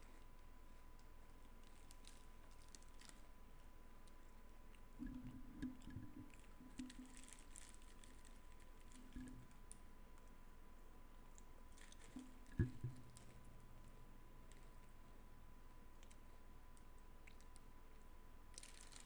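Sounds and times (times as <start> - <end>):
faint clicks and taps: 11.3 - 13.5.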